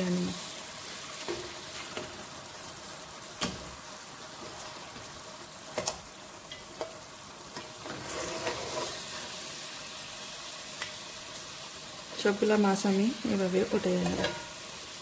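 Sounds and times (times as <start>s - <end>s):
curry sizzling in a pot: 0.0s - 15.0s.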